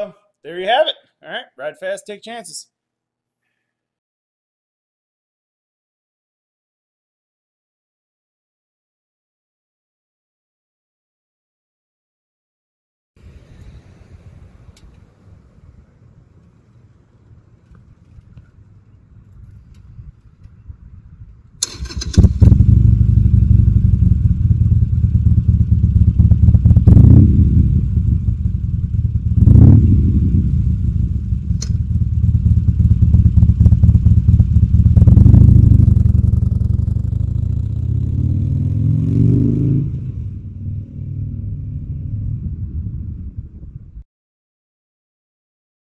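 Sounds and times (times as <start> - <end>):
motorcycle idling with throttle blips: 21.6 - 38.1
motorcycle engine starting: 21.6 - 42.5
motorcycle pulling away: 21.6 - 42.6.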